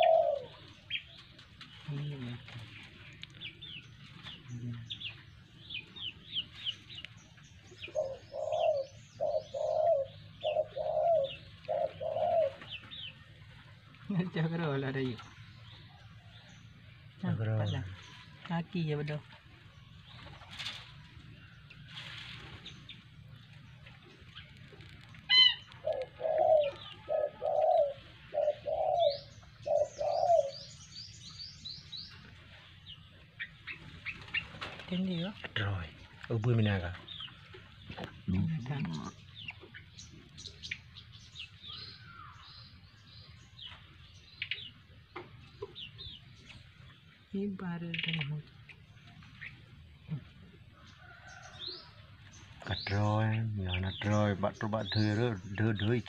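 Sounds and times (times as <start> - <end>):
dove cooing: 0.0 - 7.0, 7.7 - 14.2, 22.0 - 30.9
small bird chirping: 0.0 - 56.0.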